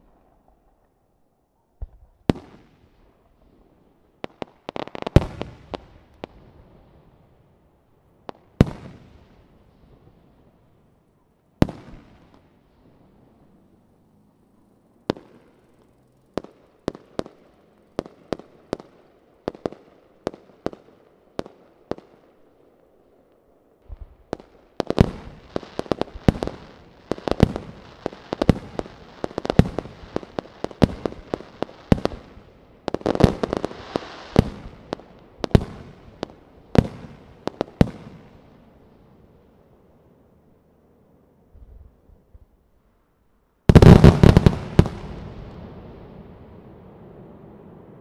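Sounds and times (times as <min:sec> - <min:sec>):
firework crackle: 0:01.8 - 0:39.8, 0:43.6 - 0:48.0
firework bangs: 0:23.8 - 0:38.7, 0:43.7 - 0:48.0.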